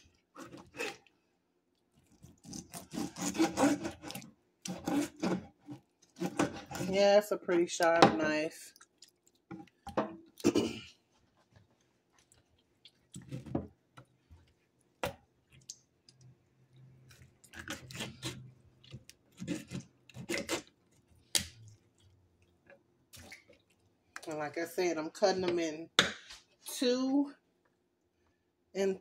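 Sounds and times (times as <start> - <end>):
knife cutting raw meat: 0.4 - 1.0, 2.2 - 7.0, 17.5 - 21.6.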